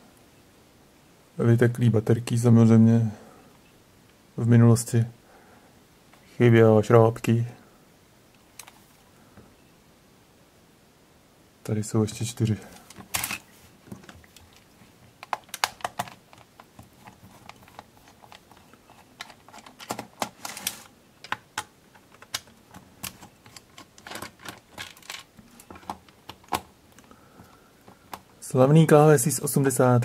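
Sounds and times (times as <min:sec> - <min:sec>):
screwdriver clicks and scrapes on plastic: 0:15.2 - 0:27.1.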